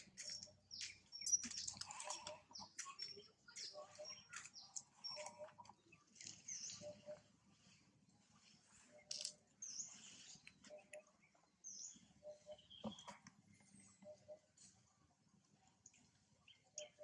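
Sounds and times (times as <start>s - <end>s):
small ticks and rustles: 0.0s - 7.3s, 8.3s - 11.0s.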